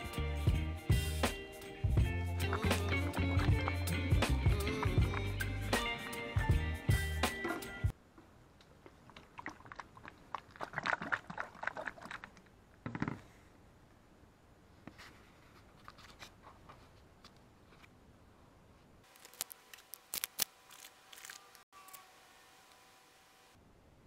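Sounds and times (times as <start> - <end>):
crinkly rustling: 14.9 - 17.9, 19.1 - 21.6.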